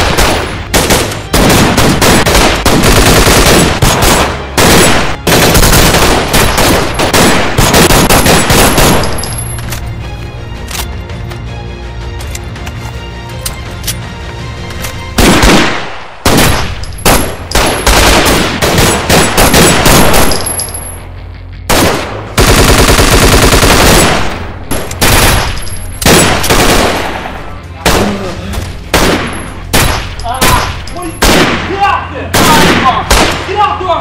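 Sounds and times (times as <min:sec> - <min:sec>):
rapid automatic gunfire: 0:00.0 - 0:09.0, 0:15.2 - 0:20.3, 0:21.7 - 0:24.3, 0:25.0 - 0:25.5
gunshots in bursts: 0:00.0 - 0:09.4, 0:15.2 - 0:20.6, 0:21.7 - 0:34.0.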